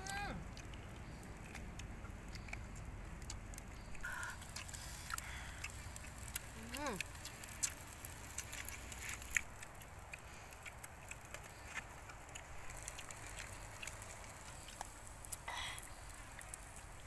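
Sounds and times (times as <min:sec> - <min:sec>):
people chewing: 0:00.0 - 0:17.0
leaves crinkling: 0:03.8 - 0:17.0.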